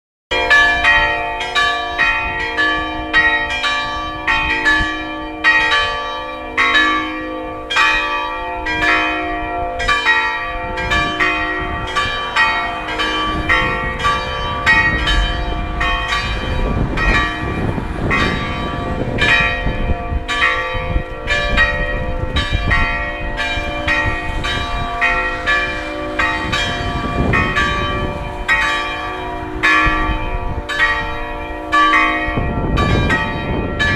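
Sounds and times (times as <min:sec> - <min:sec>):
church bells ringing in a peal: 0:00.3 - 0:33.9
low rumble: 0:10.7 - 0:28.5.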